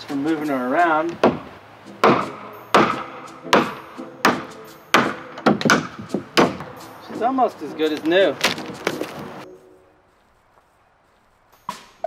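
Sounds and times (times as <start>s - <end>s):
hammer striking nails into wood: 1.1s - 6.7s.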